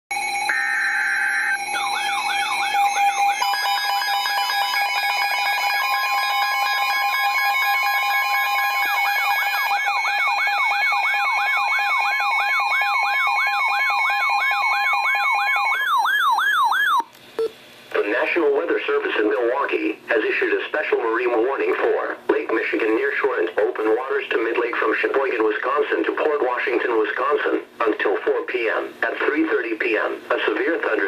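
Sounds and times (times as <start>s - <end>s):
electronic siren wails: 0.1s - 17.1s
steady alert tones: 0.1s - 17.5s.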